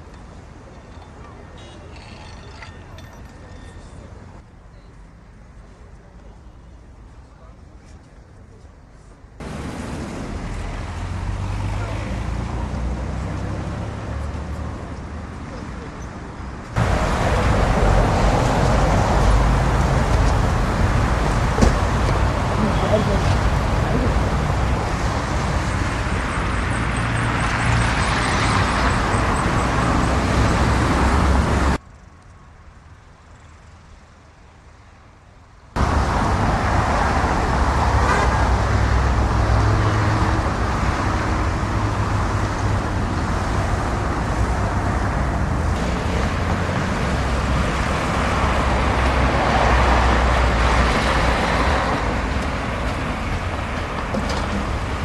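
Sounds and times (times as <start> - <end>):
dense road traffic rumble: 0.0 - 55.0.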